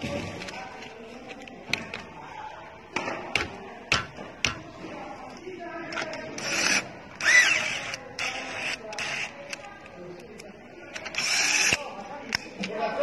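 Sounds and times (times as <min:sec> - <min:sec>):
faint voices: 0:00.0 - 0:13.0.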